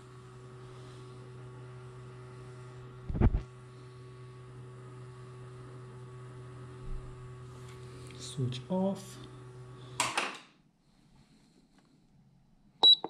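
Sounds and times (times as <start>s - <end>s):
brief low thump: 3.1s - 3.4s.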